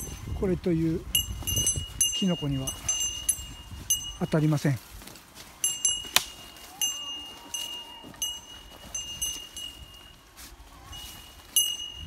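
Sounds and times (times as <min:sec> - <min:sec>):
footsteps rustling through grass: 0:00.0 - 0:12.0
small metal bell jingling: 0:01.1 - 0:04.7, 0:05.6 - 0:10.2, 0:10.9 - 0:12.0.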